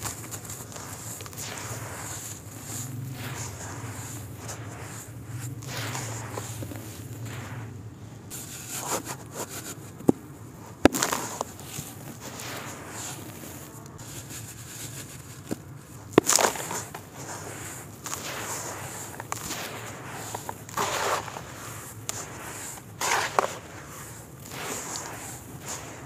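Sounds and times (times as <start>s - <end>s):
dry soil hissing and crunching: 0.0s - 26.0s
soil clumps snapping: 10.8s - 14.0s, 15.5s - 26.0s.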